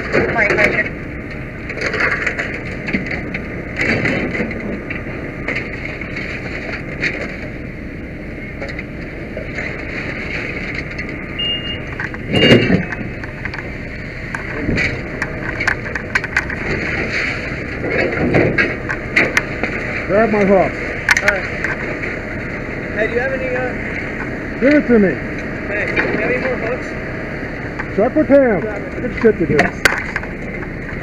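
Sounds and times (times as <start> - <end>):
fire engine running: 0.0 - 31.0
short high beeps: 11.4 - 13.0
loud clunk: 12.0 - 13.1.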